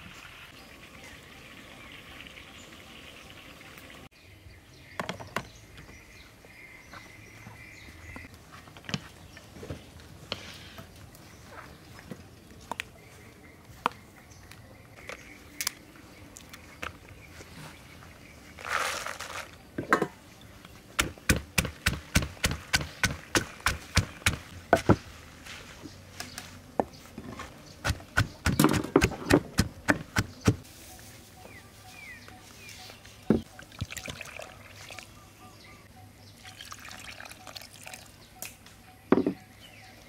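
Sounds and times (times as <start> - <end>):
rustling pour: 18.5 - 19.6
pestle pounding in wooden mortar: 21.0 - 25.0, 27.8 - 30.6.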